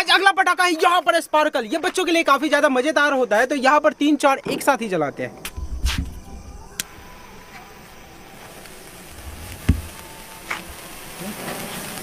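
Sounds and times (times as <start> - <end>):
sparklers hissing: 5.4 - 12.0
dull thump: 5.5 - 6.5, 9.2 - 10.7.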